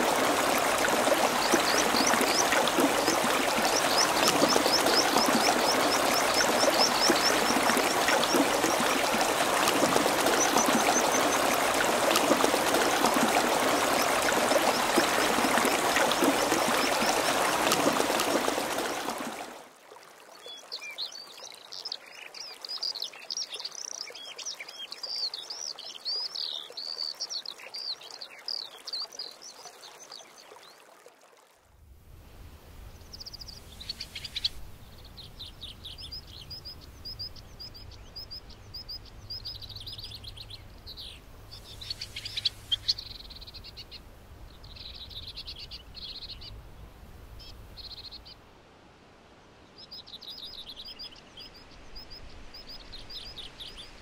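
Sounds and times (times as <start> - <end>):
birdsong: 0.0 - 19.5, 32.9 - 48.4
river rushing over gravel: 0.0 - 19.6.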